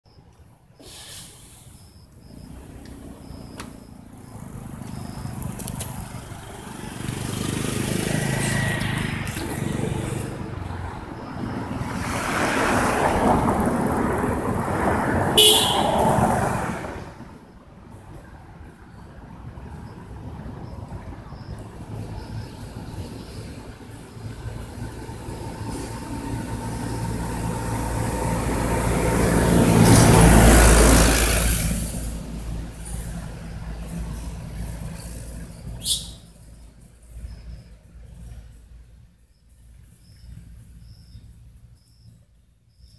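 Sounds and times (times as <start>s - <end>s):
vehicle driving past: 2.2s - 17.3s, 21.9s - 38.5s.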